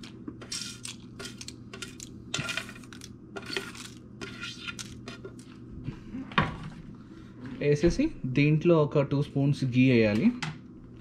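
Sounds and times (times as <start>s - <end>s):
steady low hum: 0.0s - 11.0s
kitchen utensils clinking: 0.4s - 5.3s.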